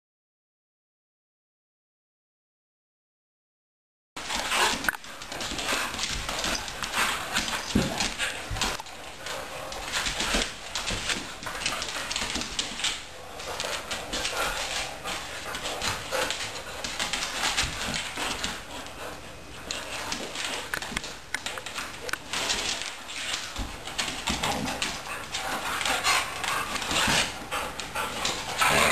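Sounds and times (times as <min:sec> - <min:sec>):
dogs scuffling: 0:04.2 - 0:28.9
dog vocal sounds: 0:27.9 - 0:28.9.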